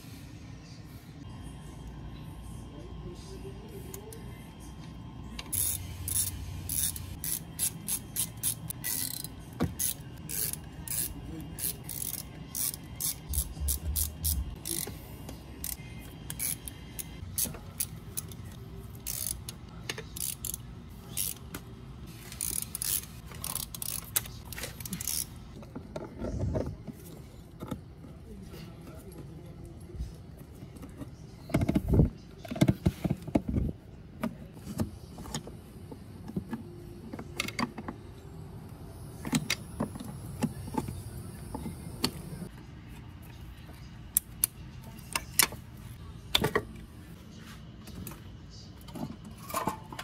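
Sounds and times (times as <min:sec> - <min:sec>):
ratchet wrench clicking: 0:05.4 - 0:14.9, 0:15.6 - 0:21.5, 0:22.3 - 0:25.3.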